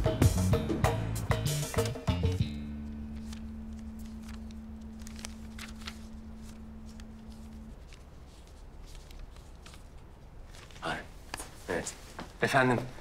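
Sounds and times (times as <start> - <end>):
held low tone: 2.4 - 7.8
low steady hum: 2.4 - 11.4
paper rustling and clicking: 2.8 - 11.6.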